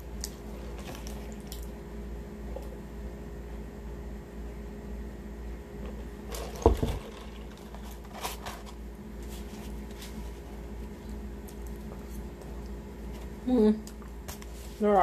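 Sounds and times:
steady low hum: 0:00.0 - 0:15.0
paper wrapper rustling: 0:06.3 - 0:10.3.

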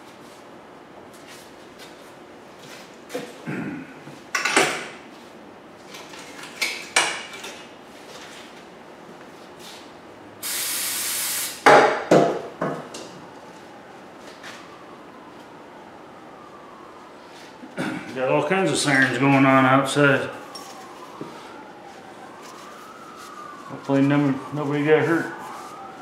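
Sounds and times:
steady hiss: 0:10.4 - 0:11.6.

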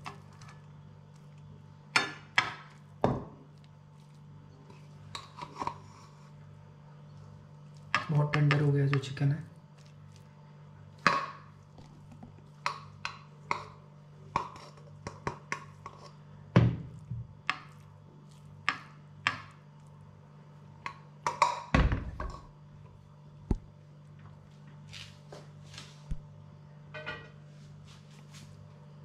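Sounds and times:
spoon scraping a plate: 0:13.5 - 0:16.2.

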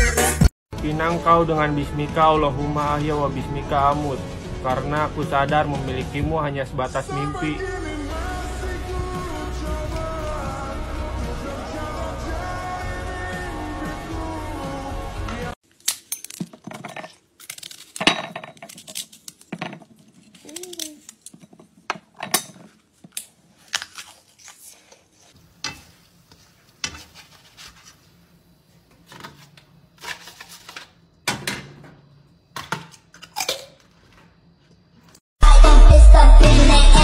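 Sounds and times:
utensils clinking on plate and pan: 0:25.6 - 0:26.0.

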